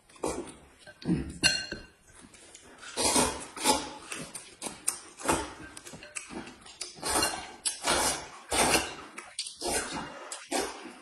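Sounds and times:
noodles being slurped: 0:02.3 - 0:11.0.

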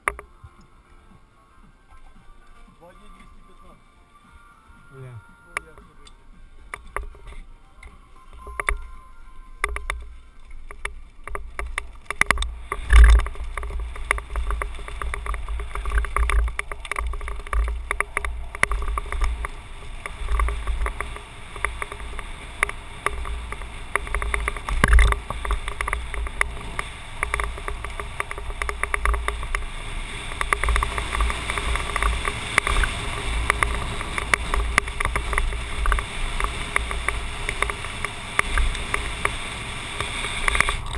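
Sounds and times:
bike rattling over bumps: 0:00.0 - 0:00.5, 0:05.6 - 0:40.9
tyres crunching on gravel: 0:00.0 - 0:40.9
wind rumble on microphone: 0:08.3 - 0:40.9.

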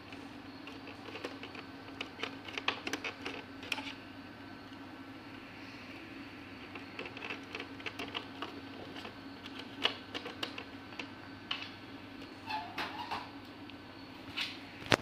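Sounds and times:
steady low hum: 0:00.0 - 0:15.0
clicks and taps of plastic parts: 0:06.7 - 0:11.7.

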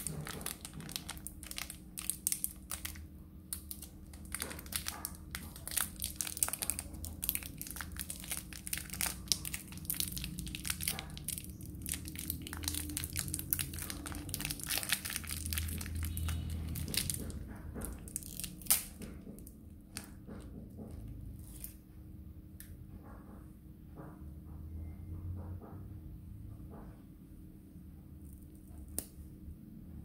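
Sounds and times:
plastic wrapper crinkling: 0:00.0 - 0:20.2.

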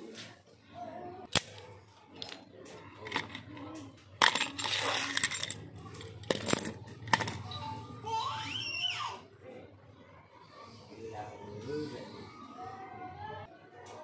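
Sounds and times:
padlock and keys clinking: 0:03.0 - 0:07.5.

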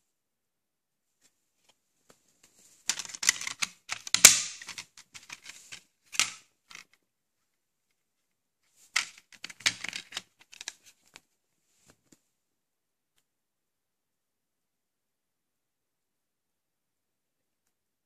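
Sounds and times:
plastic disc case clicks and rattles: 0:02.9 - 0:06.9, 0:09.0 - 0:10.9.

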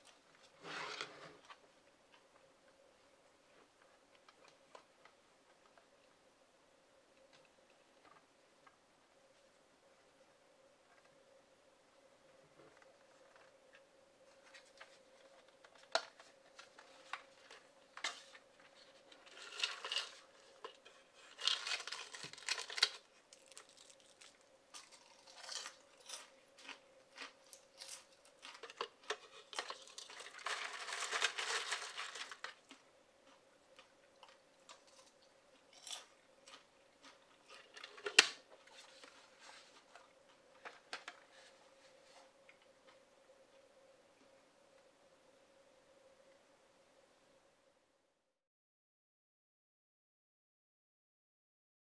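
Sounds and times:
faint steady hum: 0:00.0 - 0:48.4
popcorn rustling inside bucket: 0:14.3 - 0:42.5.

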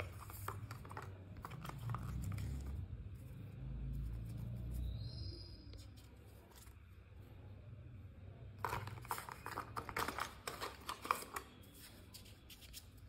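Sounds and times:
paper and cardboard rustling: 0:00.0 - 0:02.8, 0:08.6 - 0:13.0.

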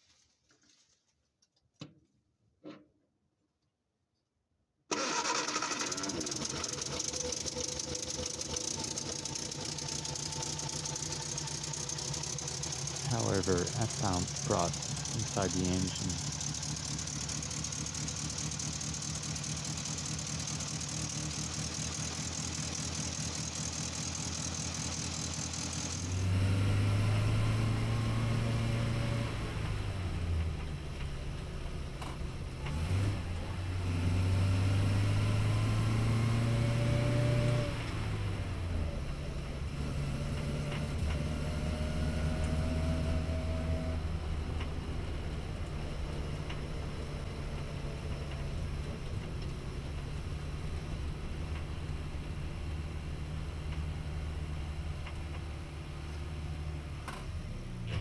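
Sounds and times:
car engine revving through gears: 0:04.9 - 0:31.3, 0:32.0 - 0:51.7
car engine idling: 0:04.9 - 0:33.8, 0:40.3 - 0:57.5.

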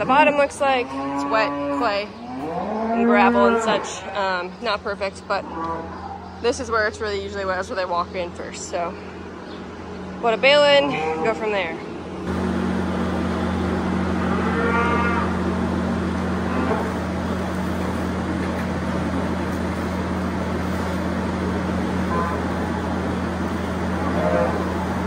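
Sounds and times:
cow mooing: 0:00.0 - 0:04.3, 0:14.1 - 0:15.5, 0:16.2 - 0:17.0, 0:22.0 - 0:22.9, 0:23.8 - 0:25.0
tractor engine idling: 0:11.5 - 0:14.4, 0:15.2 - 0:25.0.

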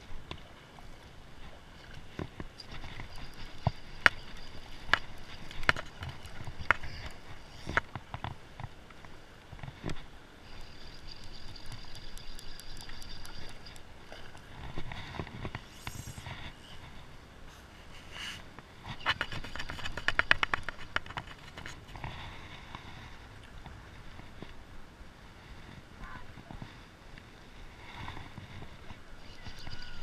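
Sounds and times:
fly reel clicking: 0:10.6 - 0:13.9, 0:15.4 - 0:16.8.

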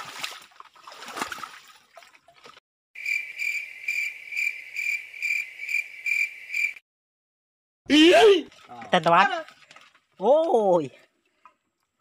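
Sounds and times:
splashing in shallow water: 0:00.0 - 0:02.6, 0:08.0 - 0:12.0
cricket chirp sound effect: 0:03.0 - 0:06.8.

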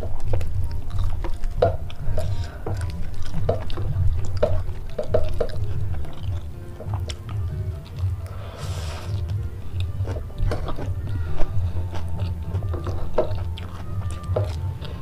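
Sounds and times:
background music with low beat: 0:00.0 - 0:15.0.

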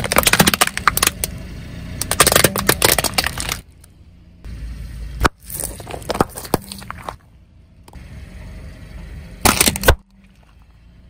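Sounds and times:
plastic toy cracking under tyre: 0:00.0 - 0:01.3, 0:02.0 - 0:03.7, 0:09.4 - 0:10.1
sharp plastic crack: 0:00.0 - 0:01.4, 0:02.0 - 0:03.7, 0:09.4 - 0:10.2.

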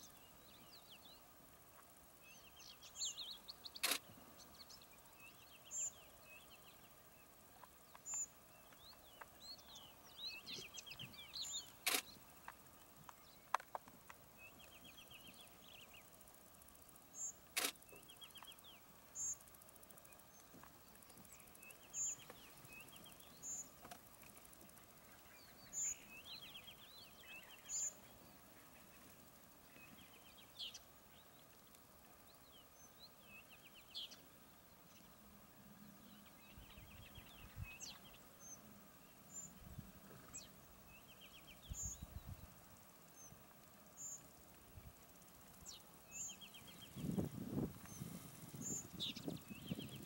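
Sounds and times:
sharp clicks: 0:03.8 - 0:04.1, 0:11.6 - 0:14.2, 0:17.4 - 0:18.6.

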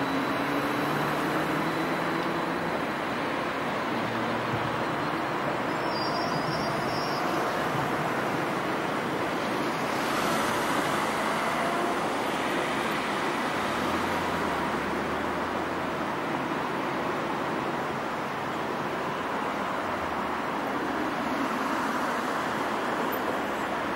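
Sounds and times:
electric train rolling to a stop: 0:00.0 - 0:09.6.

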